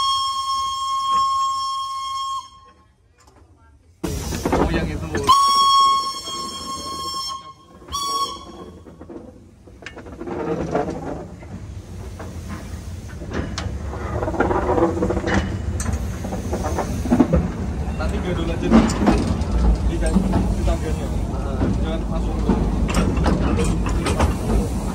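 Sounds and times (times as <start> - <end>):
steam whistle: 0.0 - 2.8, 5.3 - 8.8
steam locomotive running: 0.0 - 24.9.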